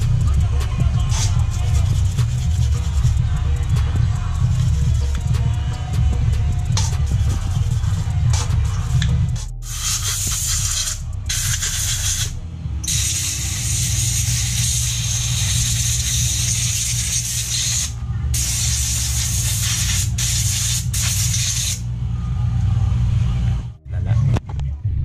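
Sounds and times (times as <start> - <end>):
air blow gun hissing: 9.6 - 12.3, 12.9 - 21.8.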